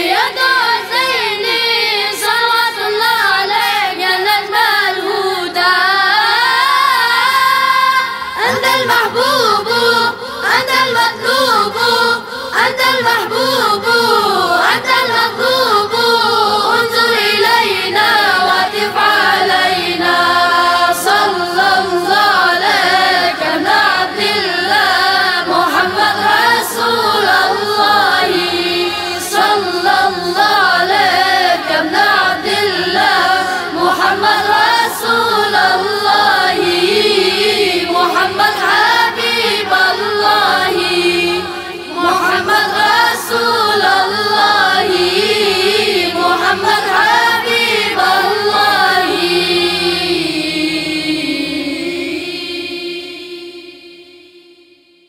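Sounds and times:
boys' group singing a chant: 0.0s - 54.7s.

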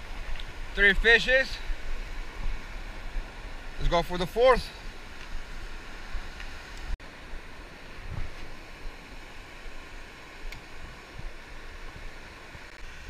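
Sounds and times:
ocean surf on shore: 0.0s - 13.0s
wind on microphone: 8.0s - 8.6s.

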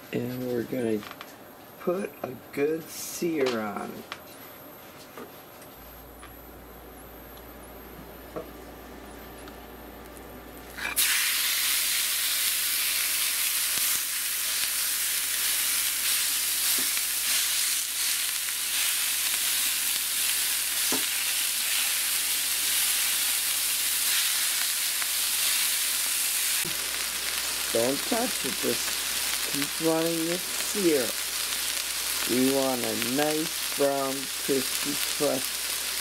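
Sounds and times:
meat sizzling in a pan: 10.8s - 36.0s.

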